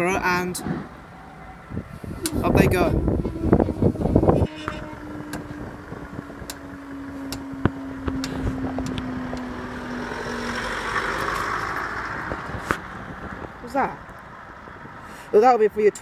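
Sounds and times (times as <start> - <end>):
barrier mechanism humming: 0.0 - 12.5
car approaching: 0.0 - 16.0.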